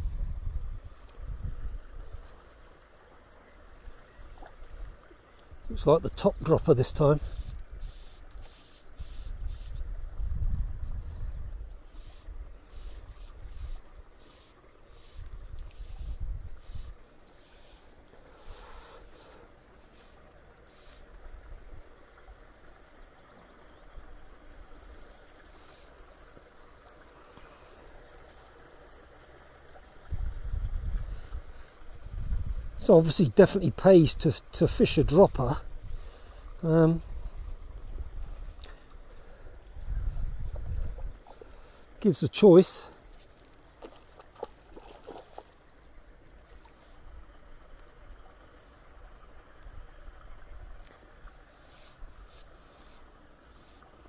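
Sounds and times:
gusty wind on microphone: 0.0 - 2.2, 9.0 - 13.7, 15.3 - 16.9, 30.1 - 32.8, 39.7 - 41.2
faint birdsong: 1.0 - 6.5, 11.0 - 30.0, 35.4 - 54.0.

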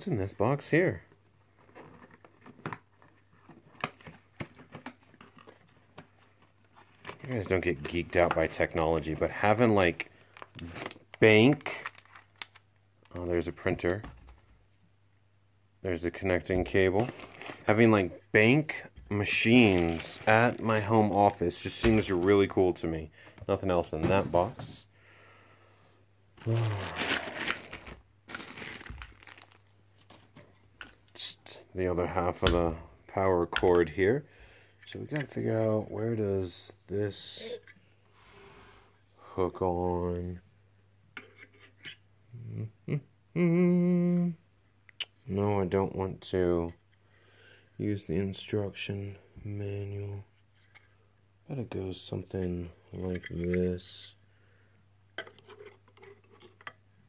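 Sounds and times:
cardboard and paper rustling: 1.6 - 9.5, 19.2 - 22.4, 26.4 - 30.7.

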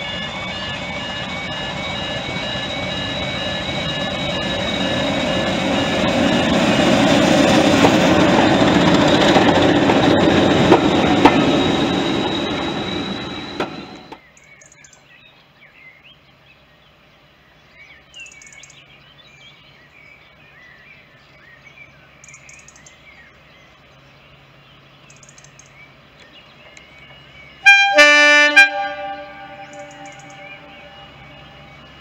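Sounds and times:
faint diesel locomotive drone: 0.0 - 15.1, 16.1 - 32.0
birds singing: 10.1 - 28.0, 28.8 - 32.0
two-tone locomotive horn: 27.6 - 31.9.

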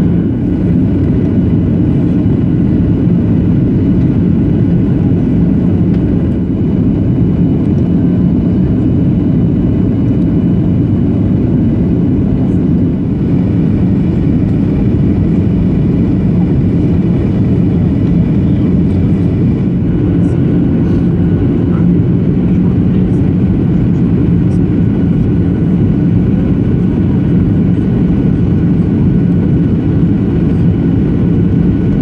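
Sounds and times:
low hum of jet engines: 0.0 - 32.0.

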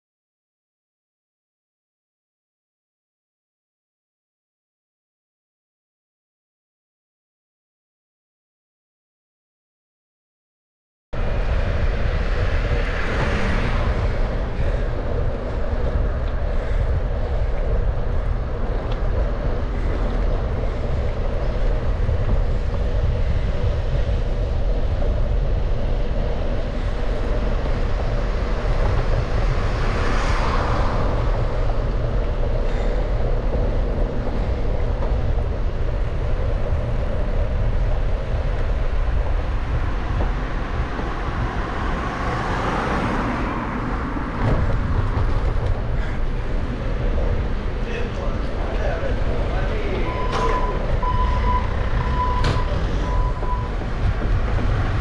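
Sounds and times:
road noise: 11.2 - 55.0
vehicles passing: 11.2 - 55.0
wind rumble on microphone: 11.2 - 55.0.

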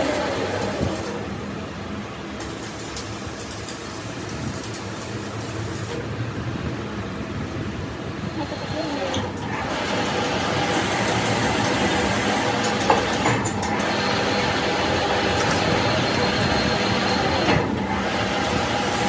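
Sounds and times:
metal lathe running: 0.0 - 1.3, 8.4 - 19.0.

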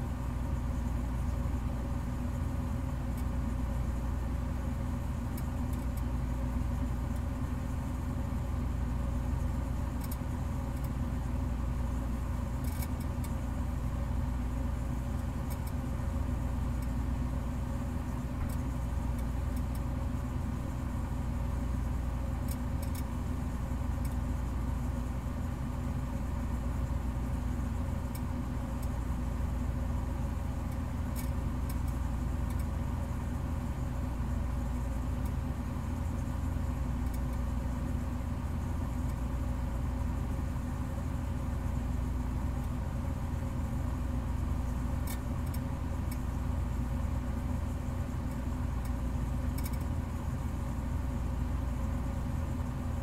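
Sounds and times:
low mechanical hum: 0.0 - 53.0
faint clicks: 45.0 - 46.2, 48.3 - 50.0.

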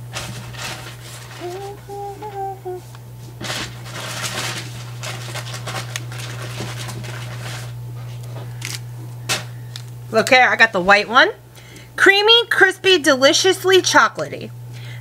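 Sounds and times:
food packaging rustling: 0.0 - 2.0, 3.4 - 10.0
steady low hum: 0.0 - 15.0.

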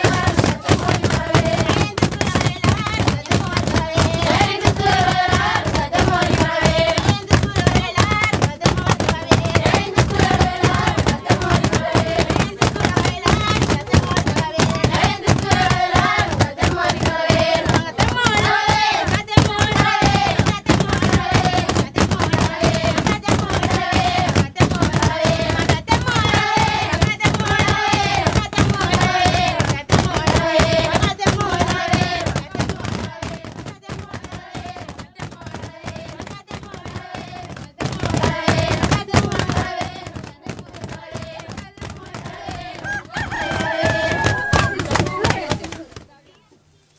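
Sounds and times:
rapid rhythmic percussion: 0.0 - 46.1
voices singing: 0.0 - 46.1.

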